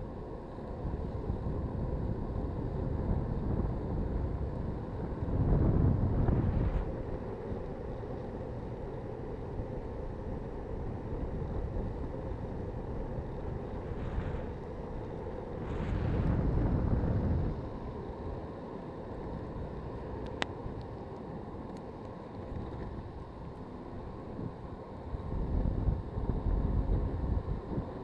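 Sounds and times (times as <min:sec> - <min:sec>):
skateboard wheels rumbling on asphalt: 0:00.1 - 0:28.0
wind on microphone: 0:00.7 - 0:07.2, 0:11.0 - 0:17.9, 0:24.2 - 0:28.0.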